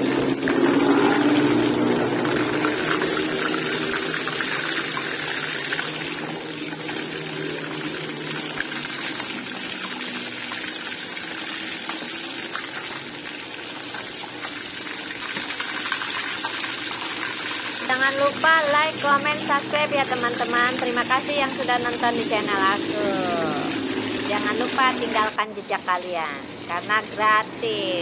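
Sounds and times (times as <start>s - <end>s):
fish sizzling in hot oil: 0.0s - 28.0s.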